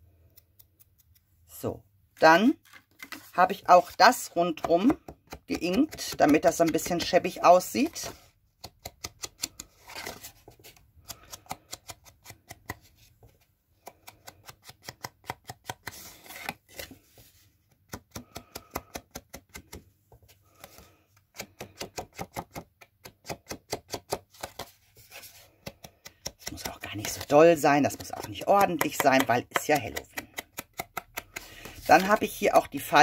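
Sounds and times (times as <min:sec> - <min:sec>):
sponge dauber tapping on card: 0:27.9 - 0:32.2.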